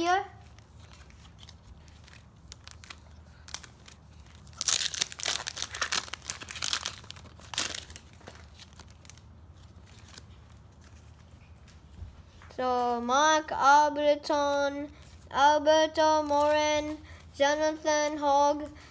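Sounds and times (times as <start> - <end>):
foil wrappers crinkling: 0.5 - 11.3.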